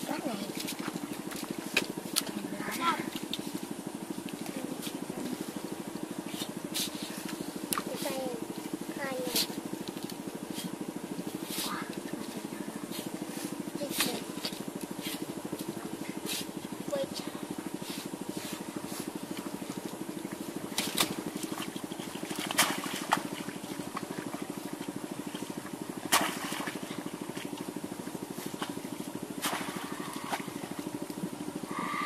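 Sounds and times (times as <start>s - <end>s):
steady low hum: 0.0s - 32.0s
wet slaps and splashes: 20.7s - 27.7s, 29.4s - 31.2s.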